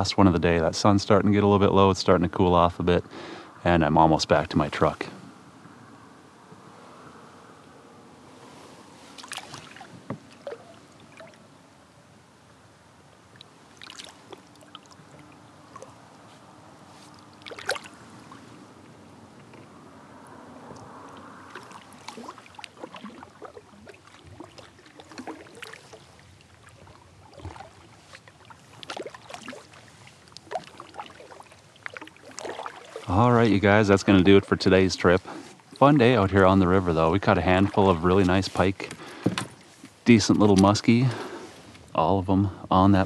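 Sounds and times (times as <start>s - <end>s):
paddle strokes: 8.0s - 11.6s, 13.3s - 42.1s
water splashing and dripping: 9.1s - 11.4s, 13.3s - 16.2s, 17.1s - 18.5s, 20.6s - 34.5s.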